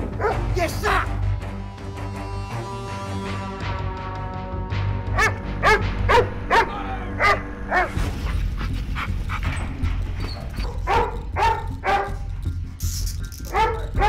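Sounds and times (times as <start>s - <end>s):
dog barking: 0.2s - 0.5s, 5.2s - 8.0s, 10.4s - 12.2s, 13.5s - 14.0s.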